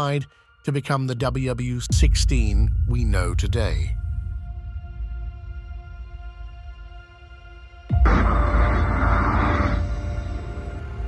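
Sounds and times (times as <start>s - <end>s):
music drone: 6.4s - 11.0s.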